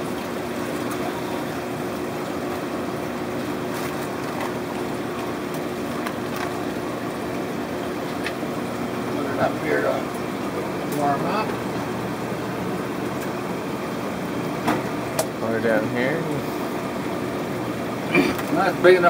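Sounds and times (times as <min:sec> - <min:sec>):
aquarium pump hum: 0:00.0 - 0:19.0
running water: 0:00.0 - 0:19.0.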